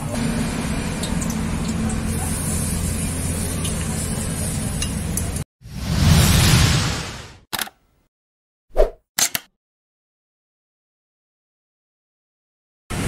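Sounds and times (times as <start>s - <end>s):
whoosh sound effect: 5.6s - 7.4s.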